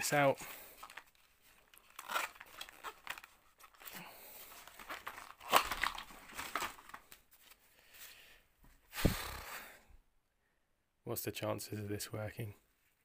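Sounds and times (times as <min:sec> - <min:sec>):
newspaper and bubble wrap crinkling: 0:00.0 - 0:07.6
heavy thud: 0:09.0 - 0:09.4.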